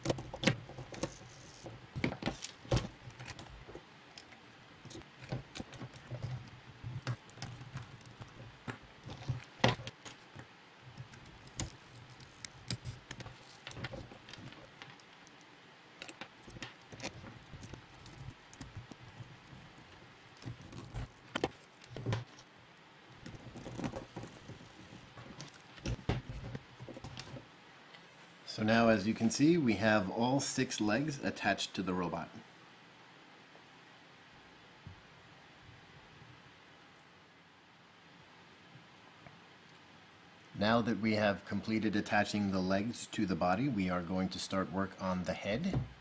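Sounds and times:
plastic parts clicking and rattling: 0.0s - 15.4s, 16.0s - 22.4s, 23.2s - 27.4s.

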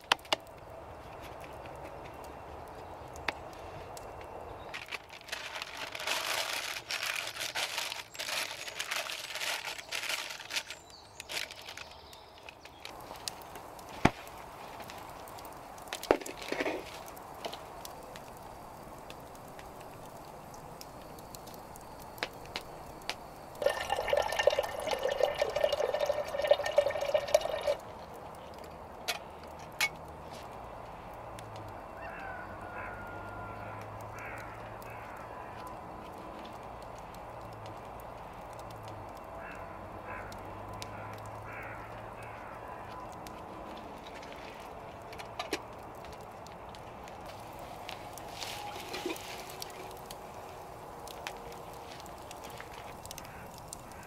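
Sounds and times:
paper rustling and crinkling: 4.6s - 15.3s, 15.9s - 17.7s, 47.1s - 53.0s.

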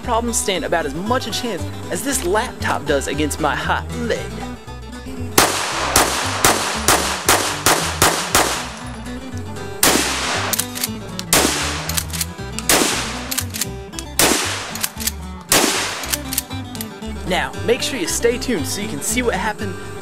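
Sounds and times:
background music with bass line: 0.0s - 20.0s
rapid gunshots: 5.4s - 8.8s, 9.8s - 16.4s.

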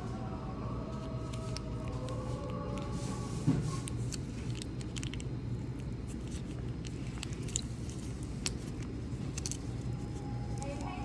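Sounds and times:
steady low hum: 0.0s - 11.0s
sachet squishing: 1.0s - 11.0s
wrapper crinkles and clicks: 3.8s - 11.0s.

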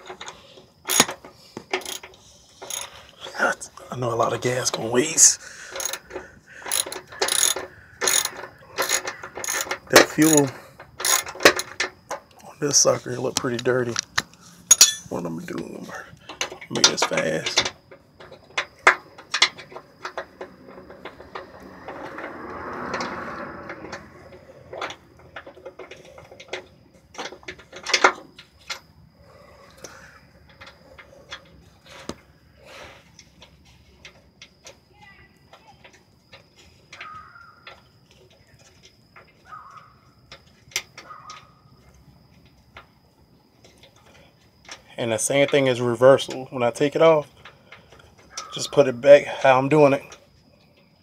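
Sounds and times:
hand ratchet clicking: 0.0s - 3.0s, 5.6s - 12.2s
metal tool clicks: 0.1s - 1.2s, 13.3s - 15.1s
metal rubbing squeaks: 4.5s - 11.4s.

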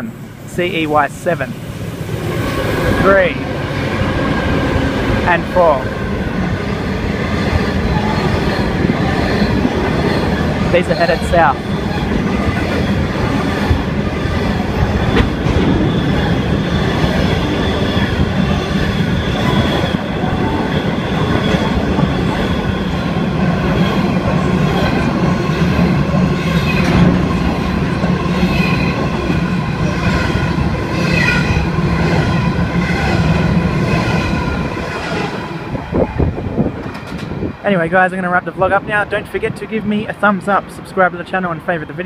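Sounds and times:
train wheels rumbling on rail: 0.0s - 42.0s
wheels squealing: 6.4s - 35.3s.

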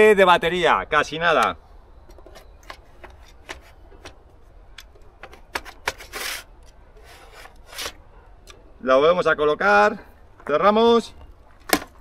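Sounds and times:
battery pack scraping: 5.2s - 8.0s.

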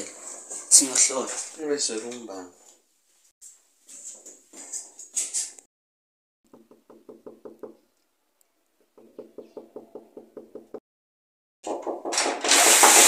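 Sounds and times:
knuckles knocking on wooden door: 6.5s - 7.8s, 9.0s - 10.8s.

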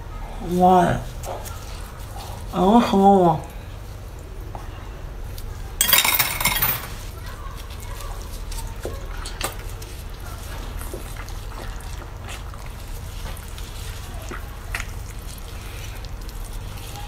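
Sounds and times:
wet chewing and smacking: 7.2s - 17.0s.

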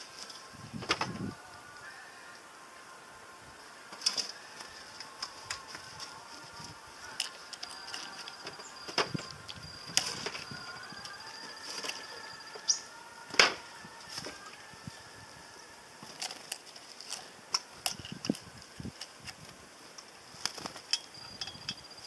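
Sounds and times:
wing flutters: 20.2s - 22.0s.

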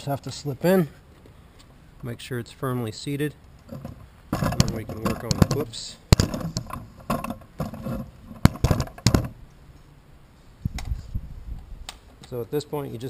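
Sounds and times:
plastic cover clicks and knocks: 3.7s - 7.8s, 8.4s - 9.3s.

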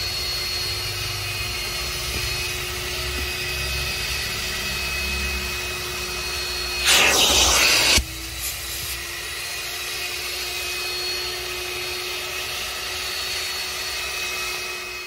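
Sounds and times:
vacuum motor whining: 0.0s - 15.0s
loud rushing hiss: 6.8s - 8.0s.

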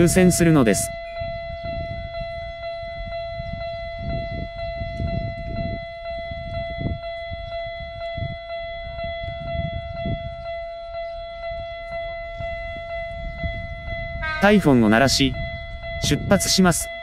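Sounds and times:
level crossing alarm ringing: 0.0s - 17.0s
low rumble: 0.9s - 17.0s.

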